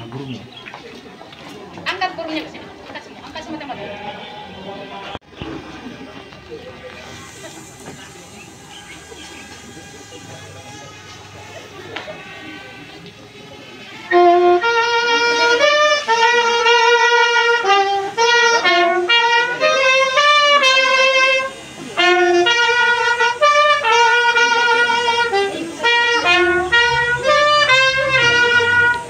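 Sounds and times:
brass-like wind instrument melody: 0:07.0 - 0:29.0.

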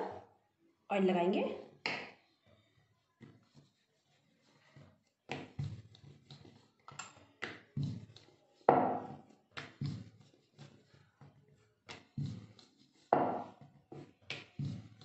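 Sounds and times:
rolling pin knocking on marble board: 0:08.7 - 0:10.1, 0:11.9 - 0:15.0.

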